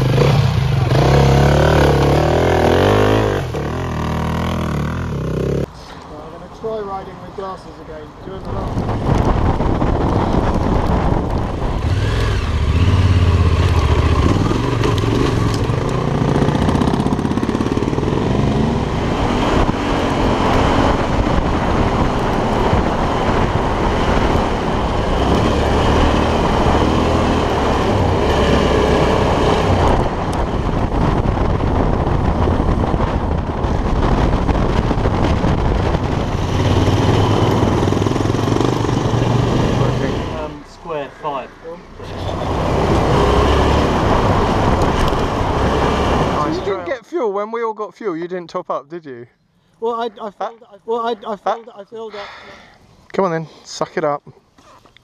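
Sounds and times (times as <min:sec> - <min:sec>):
wind and road noise: 0:00.0 - 0:55.0
motorcycle engine running: 0:09.3 - 0:19.9.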